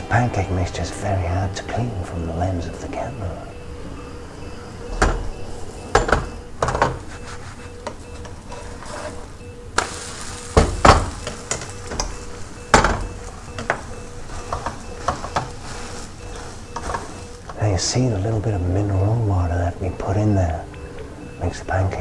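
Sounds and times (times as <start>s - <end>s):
spatula scraping pan: 6.9s - 12.6s, 13.3s - 17.5s
batter sizzling: 9.7s - 17.5s
frying pan knocking on hob: 10.5s - 15.7s.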